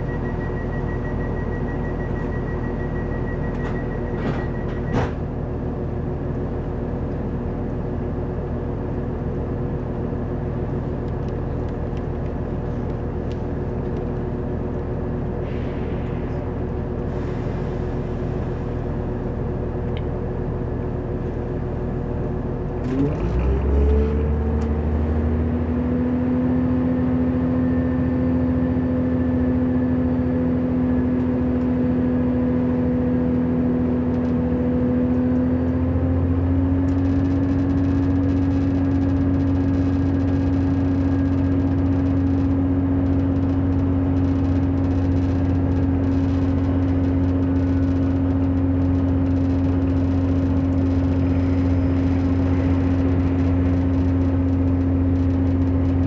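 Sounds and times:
deep rumble: 0:00.0 - 0:22.9, 0:35.6 - 0:56.0
diesel train engine droning: 0:00.0 - 0:56.0.

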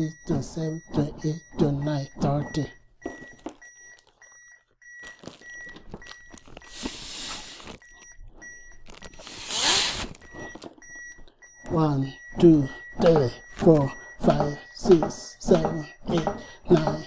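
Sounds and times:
metronome beeps: 0:00.0 - 0:17.0
breaths blown into manikin: 0:06.7 - 0:07.7.

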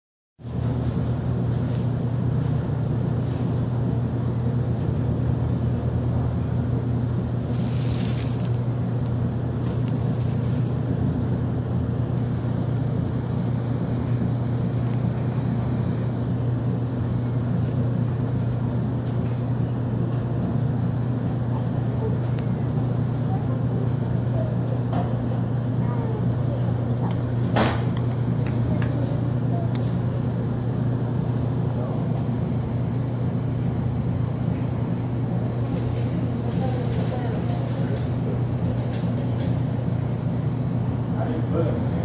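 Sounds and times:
motor humming: 0:06.6 - 0:21.4.

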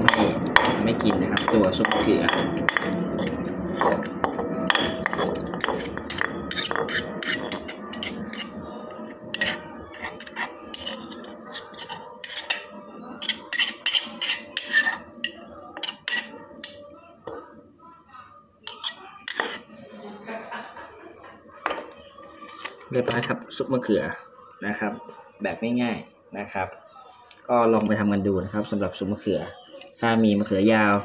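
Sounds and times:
metal spoon scraping stone mortar: 0:00.0 - 0:16.8, 0:18.7 - 0:19.7
spoon clinking against stone: 0:09.4 - 0:12.6, 0:13.2 - 0:16.8, 0:18.7 - 0:19.6.

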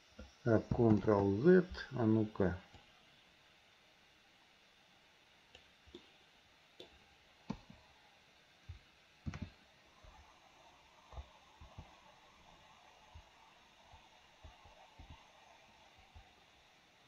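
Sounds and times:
computer mouse clicks: 0:09.2 - 0:09.6
keyboard clicks: 0:09.3 - 0:09.5.

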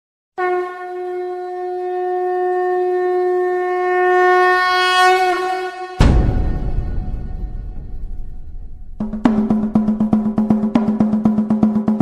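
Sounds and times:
horn long steady note: 0:00.4 - 0:10.5
heavy drum hit: 0:06.0 - 0:12.0.

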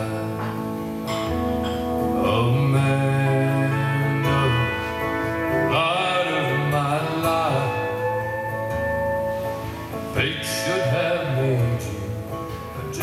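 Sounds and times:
acoustic guitar: 0:00.0 - 0:13.0
pedal steel guitar bending notes: 0:00.0 - 0:13.0.

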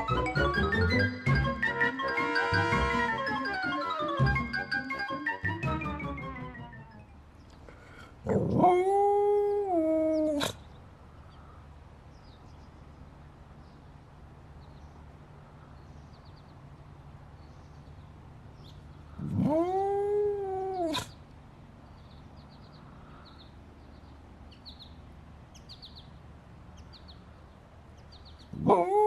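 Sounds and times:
dog howling: 0:19.2 - 0:21.1, 0:28.6 - 0:29.0.

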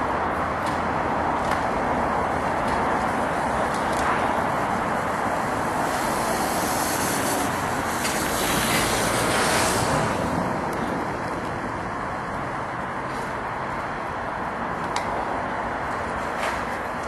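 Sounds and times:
vehicle passing: 0:01.8 - 0:14.7.

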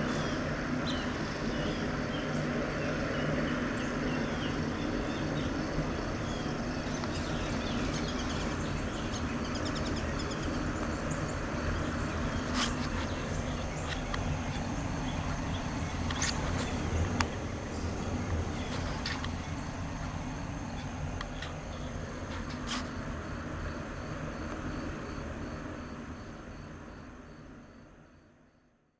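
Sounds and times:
low mechanical drone: 0:00.0 - 0:28.5
insect buzz: 0:00.0 - 0:28.8
bird chirps: 0:00.1 - 0:19.6.

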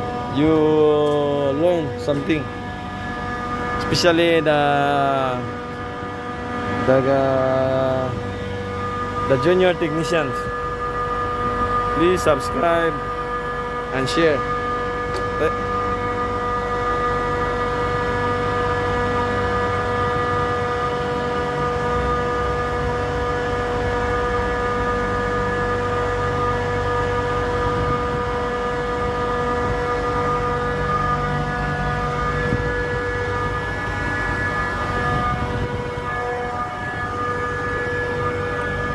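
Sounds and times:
chiller whining and rumbling: 0:00.0 - 0:38.9.

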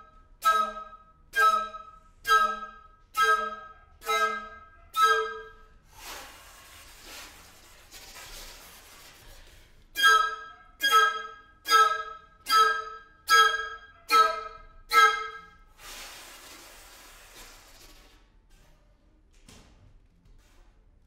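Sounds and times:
short loud recorder notes: 0:00.0 - 0:05.8, 0:10.0 - 0:15.6.

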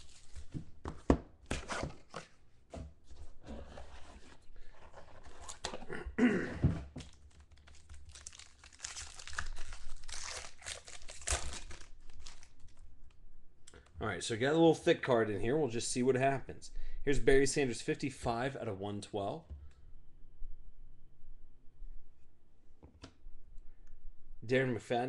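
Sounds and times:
foil wrapper tearing and crinkling: 0:00.0 - 0:00.5, 0:07.0 - 0:12.8.

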